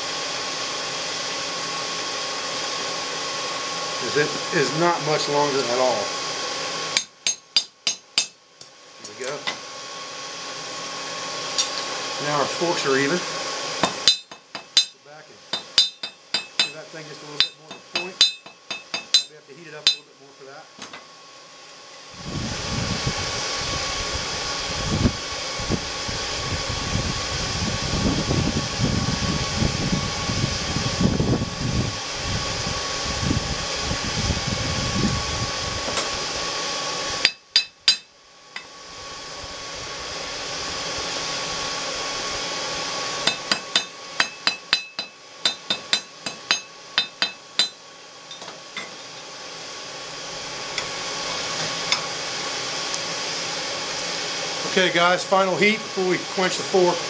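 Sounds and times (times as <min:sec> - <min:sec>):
hammer striking steel on anvil: 0:07.0 - 0:08.4, 0:13.8 - 0:16.8, 0:17.4 - 0:20.1, 0:37.2 - 0:38.7, 0:43.2 - 0:49.0.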